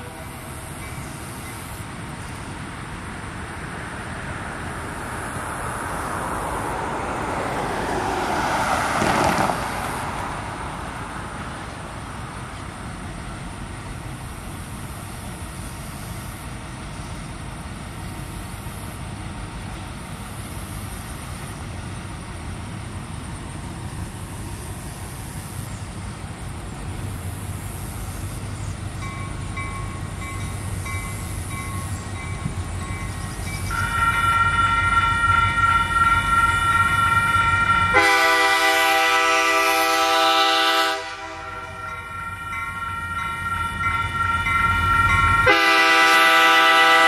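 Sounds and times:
diesel locomotive engine rumble: 0.0s - 47.0s
locomotive air horn: 33.7s - 47.0s.

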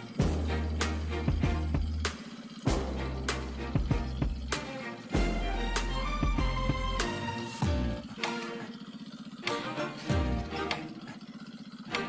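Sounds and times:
background music with steady pulse: 0.0s - 12.0s
deep bass hit: 0.2s - 2.1s, 2.7s - 4.5s.

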